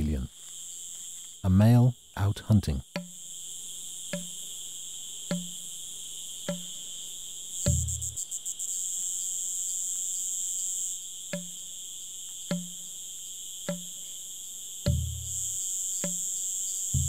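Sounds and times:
cicada buzzing: 0.0s - 17.0s
soft low knocks: 14.9s - 15.4s.

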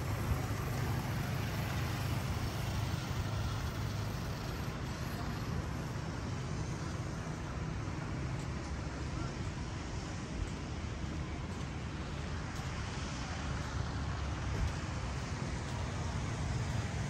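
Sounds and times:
motorbike engines passing: 0.0s - 8.3s
street traffic noise: 0.0s - 17.0s.

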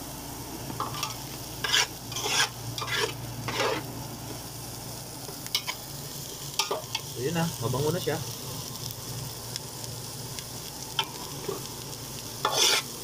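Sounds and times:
food sizzling in hot oil: 0.0s - 13.0s
metal spatula scraping a pot: 0.8s - 3.9s, 12.4s - 12.9s.

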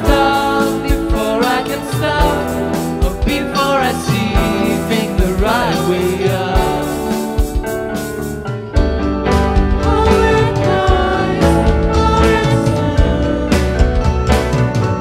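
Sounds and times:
man singing: 0.0s - 7.4s
drums: 0.0s - 15.0s
electric guitars: 0.0s - 15.0s
keyboard: 0.0s - 15.0s.

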